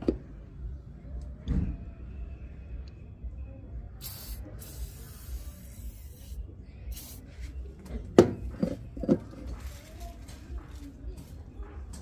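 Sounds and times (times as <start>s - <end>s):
aerosol can spraying: 4.0s - 7.4s.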